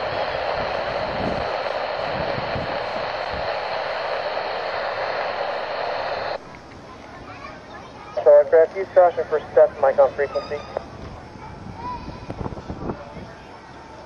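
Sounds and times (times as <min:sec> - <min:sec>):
radio static hiss: 0:00.0 - 0:06.4, 0:08.2 - 0:10.9.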